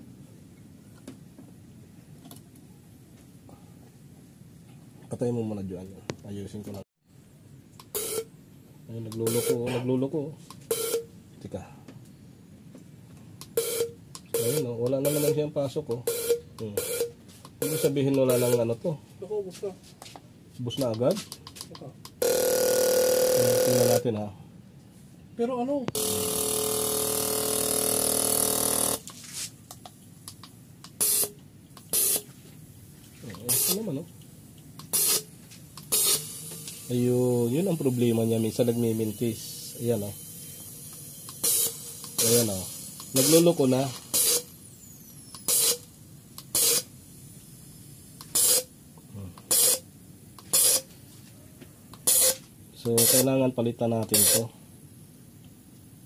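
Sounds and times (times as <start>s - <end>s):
fuel injector buzzing: 7.8s - 8.3s, 9.1s - 9.6s, 13.4s - 15.4s, 16.0s - 18.6s, 21.4s - 24.0s, 25.9s - 32.3s, 33.3s - 33.9s, 34.5s - 48.7s, 49.4s - 50.9s, 51.9s - 53.3s, 54.1s - 54.5s
man speaking: 8.9s - 10.4s, 17.6s - 19.8s, 33.2s - 34.1s
fuel spray hissing: 34.8s - 48.7s.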